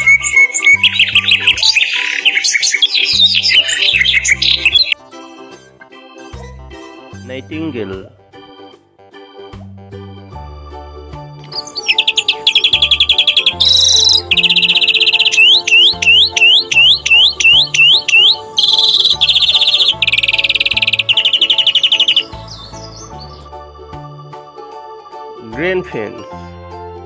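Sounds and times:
greenfinch song: 0:00.0 - 0:05.5, 0:11.3 - 0:25.2
keyboard music: 0:00.0 - 0:27.0.

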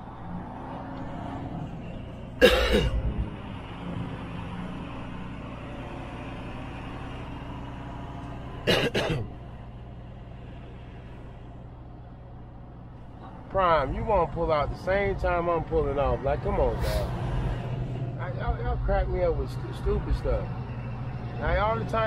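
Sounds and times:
diesel truck engine running: 0:00.0 - 0:22.0
man coughing: 0:02.4 - 0:03.0, 0:08.7 - 0:09.3.

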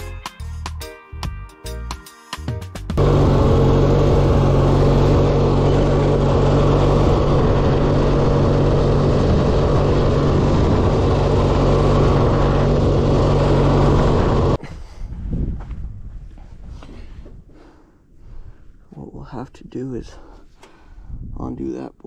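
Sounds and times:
riding lawn mower engine: 0:03.0 - 0:14.6.

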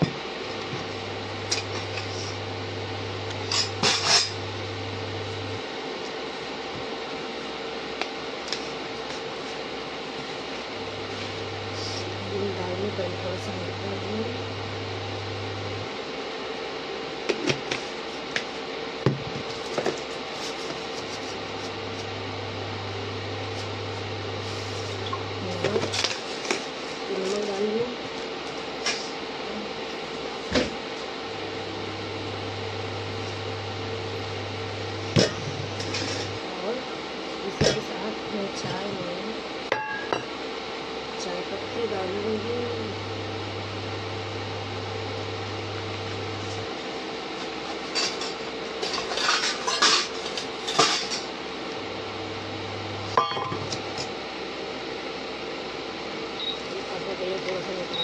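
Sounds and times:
steady hum and hiss: 0:00.0 - 0:58.0
pots and utensils clattering: 0:47.9 - 0:51.3, 0:53.2 - 0:53.8.

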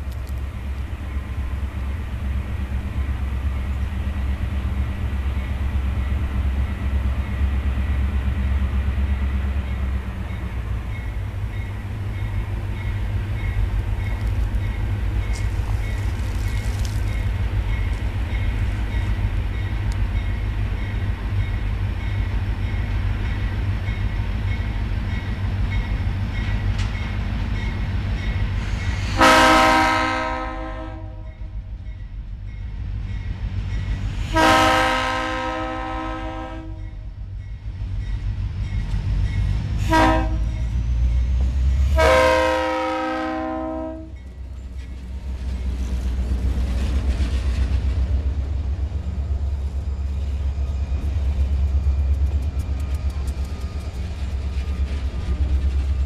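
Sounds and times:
locomotive engine rumble: 0:00.0 - 0:56.0
train air horn blasts: 0:28.9 - 0:31.5, 0:34.2 - 0:37.0, 0:39.8 - 0:40.6, 0:41.8 - 0:44.2.

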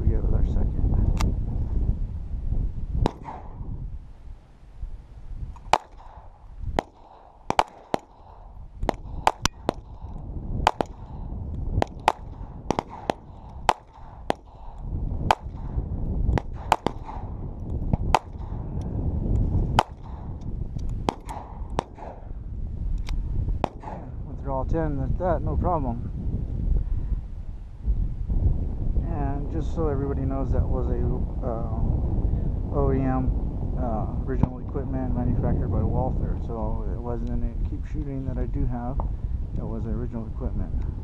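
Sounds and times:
pistol shots with echo: 0:03.0 - 0:03.6, 0:05.6 - 0:11.2, 0:11.8 - 0:17.4, 0:18.0 - 0:18.6, 0:19.8 - 0:20.4, 0:21.0 - 0:22.3, 0:23.6 - 0:24.2.

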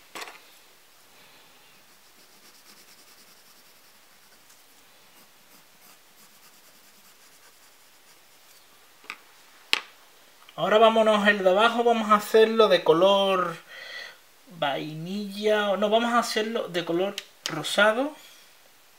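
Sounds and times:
pencil scratching on paper: 0:01.8 - 0:08.6.

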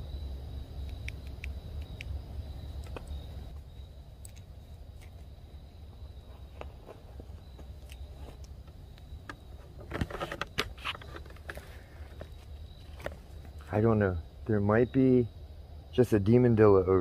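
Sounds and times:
low steady rumble: 0:00.0 - 0:17.0.

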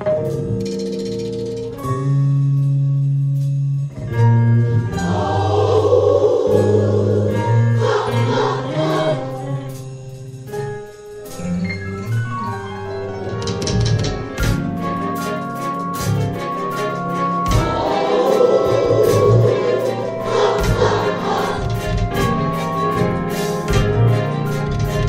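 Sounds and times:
held instrumental chords: 0:00.0 - 0:25.0
choir singing gospel: 0:04.7 - 0:09.8, 0:17.2 - 0:23.2.

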